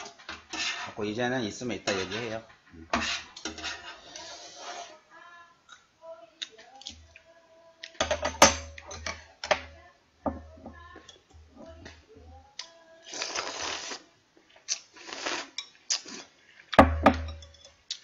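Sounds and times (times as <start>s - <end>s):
chewing: 12.6s - 16.8s
noisy noodle slurps: 13.1s - 14.1s, 14.7s - 16.4s.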